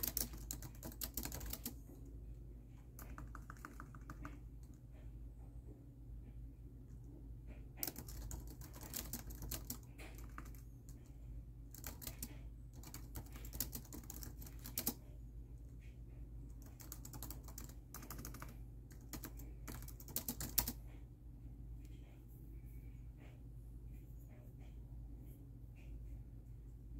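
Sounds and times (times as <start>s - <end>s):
fast typing on laptop keyboard: 0.0s - 2.1s, 2.7s - 5.0s, 7.7s - 15.7s, 16.4s - 20.8s.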